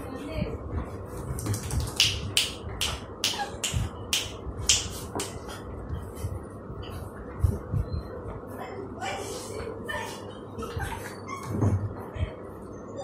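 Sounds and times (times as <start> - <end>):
puppy claws scratching: 1.3 - 2.1.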